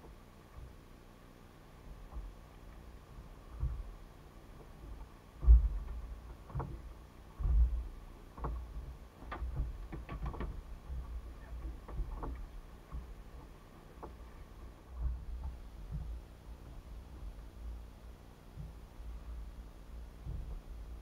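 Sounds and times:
low thumps on boat: 0:00.0 - 0:01.0, 0:01.7 - 0:21.0
sharp clicks and knocks: 0:02.0 - 0:04.0, 0:04.6 - 0:17.6.

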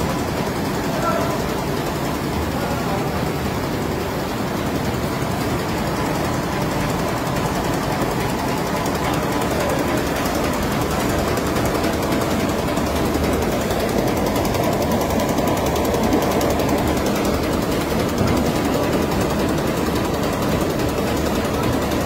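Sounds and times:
machine mechanical clatter: 0:00.0 - 0:22.0.

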